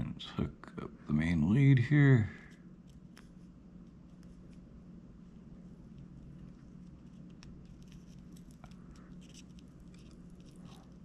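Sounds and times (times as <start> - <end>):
steady low hum: 0.0 - 11.0
solder crackling and ticking: 2.5 - 11.0.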